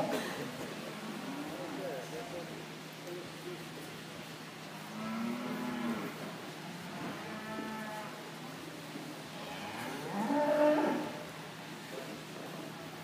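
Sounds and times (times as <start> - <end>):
cows mooing: 4.9 - 8.2, 9.4 - 11.2.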